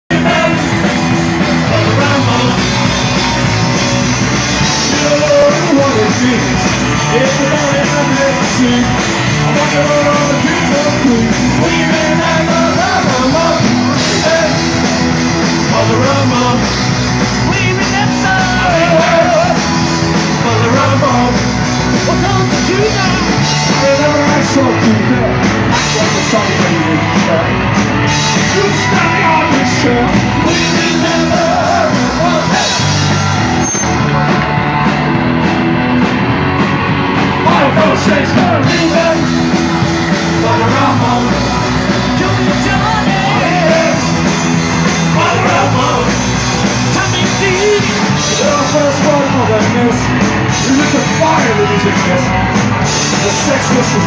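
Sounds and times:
man singing: 0:00.0 - 0:03.6, 0:04.5 - 0:27.6, 0:28.2 - 0:33.2, 0:37.4 - 0:54.0
drums: 0:00.0 - 0:54.0
electric guitar: 0:00.0 - 0:54.0.

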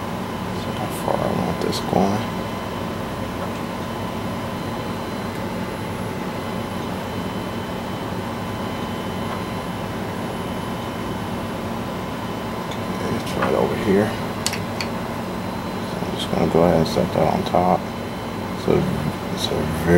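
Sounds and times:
room hum and hiss: 0:00.0 - 0:19.9.

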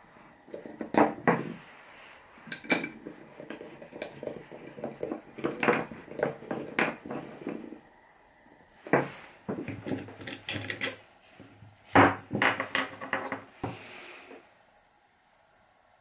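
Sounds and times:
wood knocking and rubbing on wood: 0:00.5 - 0:01.6, 0:02.5 - 0:07.8, 0:08.9 - 0:13.8.

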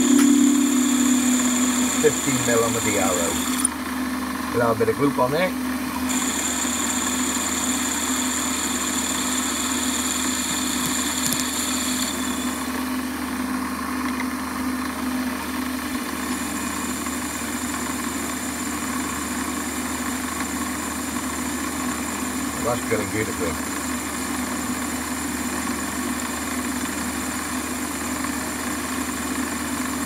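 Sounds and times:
drill cutting metal: 0:00.0 - 0:03.8, 0:06.0 - 0:12.9
high whine: 0:00.0 - 0:03.8, 0:04.5 - 0:13.0
metal lathe running: 0:00.0 - 0:04.6, 0:05.9 - 0:13.0.

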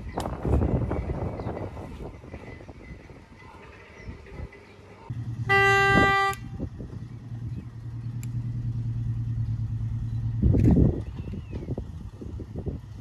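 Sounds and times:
locomotive engine droning: 0:00.0 - 0:13.0
locomotive horn toot: 0:05.4 - 0:06.8.

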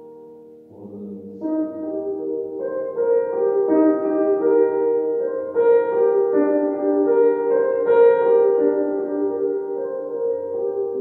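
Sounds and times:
grand piano played slowly: 0:00.0 - 0:11.0.

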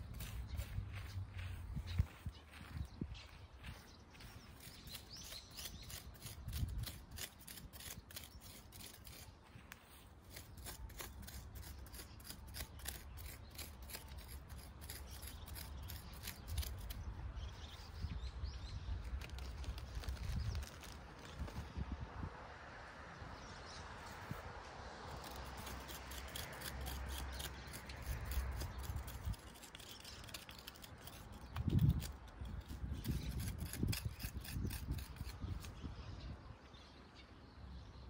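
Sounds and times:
crisp snipping of grass: 0:19.0 - 0:21.7.

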